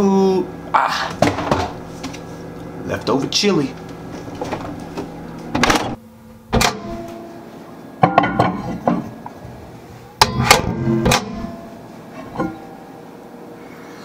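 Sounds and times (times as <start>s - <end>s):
knocks and clatters of handling: 3.8s - 6.0s.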